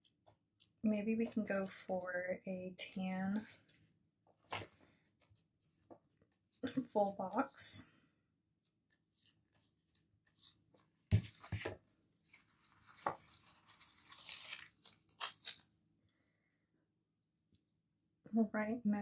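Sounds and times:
paper rustling: 4.4s - 4.8s, 9.2s - 15.7s.

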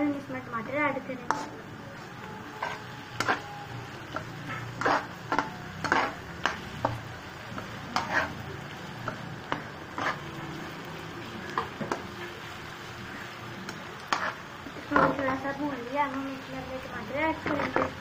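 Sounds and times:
onions sizzling in a pot: 0.0s - 18.0s
spatula scraping a steel pot: 1.2s - 1.6s, 2.5s - 6.7s, 7.9s - 8.4s, 9.9s - 10.2s, 14.1s - 15.4s, 17.4s - 18.0s.

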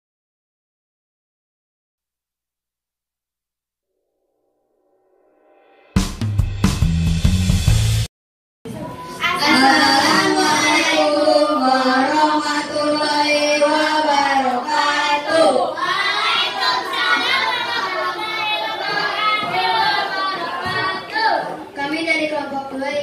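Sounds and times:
children singing: 8.8s - 23.0s
girl singing into a microphone: 9.2s - 15.8s.

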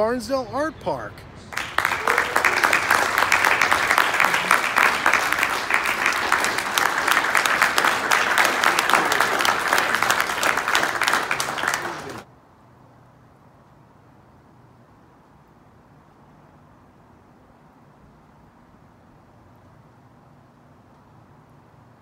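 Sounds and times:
audience applauding: 1.5s - 12.3s.

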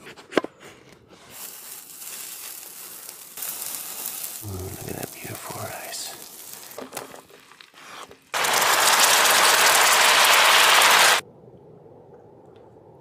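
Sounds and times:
liquid sizzling in hot pan: 1.3s - 7.1s, 8.4s - 11.2s.

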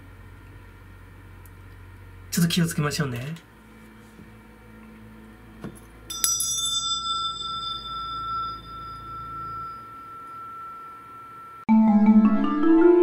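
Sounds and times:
small bell ringing: 6.1s - 11.7s.

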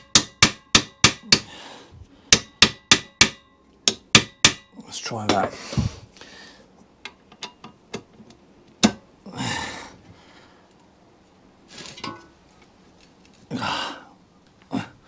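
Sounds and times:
sharp metallic knock: 0.0s - 1.5s, 2.3s - 4.7s
short breathy noises: 5.5s - 6.7s.

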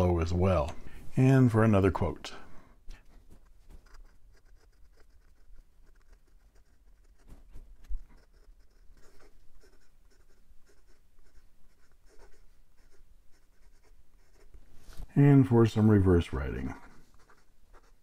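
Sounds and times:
pen nib scratching paper: 3.3s - 14.6s, 15.7s - 18.0s.

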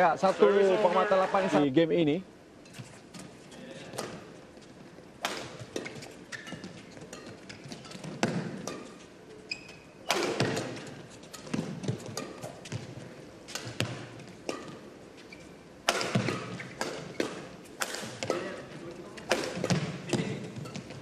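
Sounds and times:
court shoes squeaking: 2.6s - 21.0s
rackets hitting shuttlecock: 5.2s - 9.1s, 9.9s - 15.0s, 15.7s - 21.0s.

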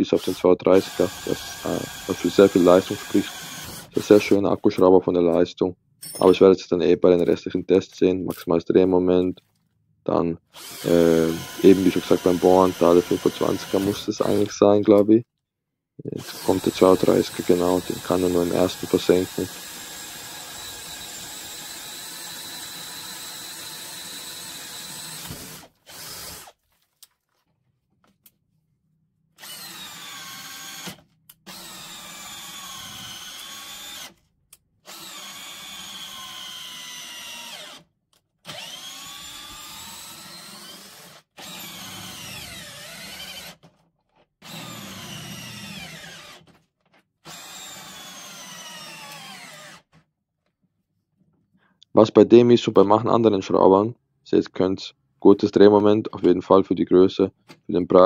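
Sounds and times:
cordless drill whining: 0.1s - 4.4s, 10.5s - 14.5s, 16.2s - 26.6s, 29.4s - 34.2s, 34.8s - 37.8s, 38.4s - 43.7s, 44.4s - 46.6s, 47.2s - 50.0s.

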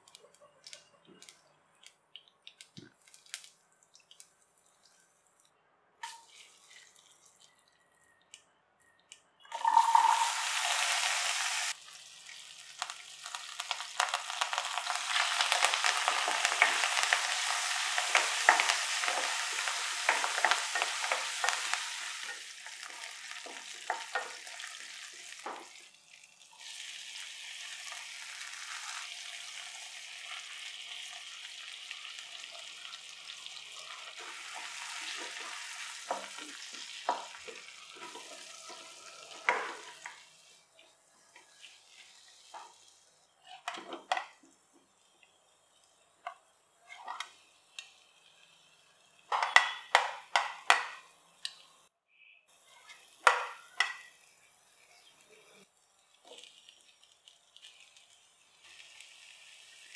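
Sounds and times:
food sizzling in hot oil: 9.5s - 45.4s, 52.5s - 59.9s.

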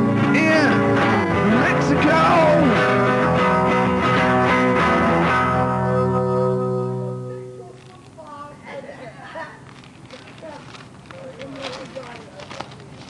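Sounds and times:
strummed guitar chord: 0.0s - 7.8s.

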